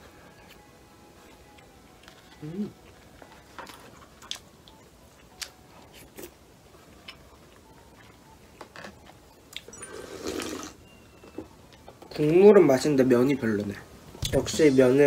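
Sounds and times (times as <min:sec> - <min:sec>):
chewing: 0:03.6 - 0:06.3
slurping broth: 0:09.8 - 0:10.8.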